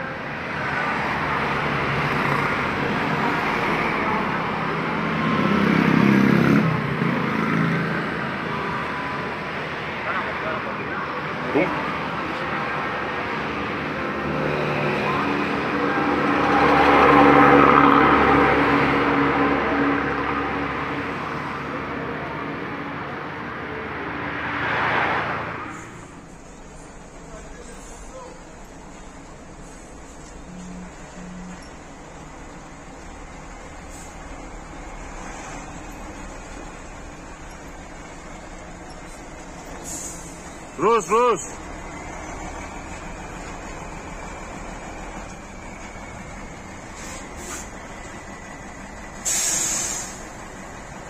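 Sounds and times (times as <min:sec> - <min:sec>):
traffic passing: 0:00.0 - 0:51.0
motorbikes passing: 0:00.1 - 0:26.4.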